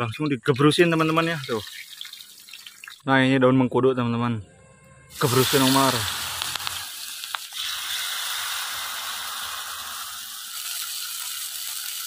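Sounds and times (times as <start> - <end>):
hot oil sizzling and crackling: 0.6 - 3.0, 5.1 - 12.0.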